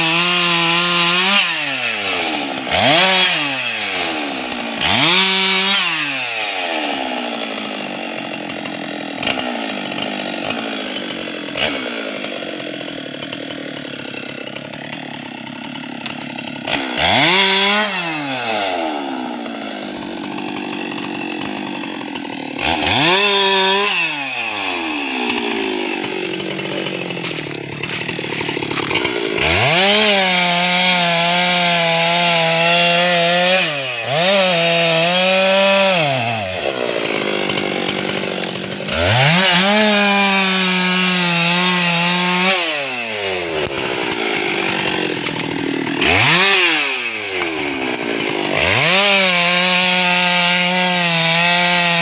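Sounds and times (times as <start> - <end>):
chainsaw cutting log: 0.0 - 52.0.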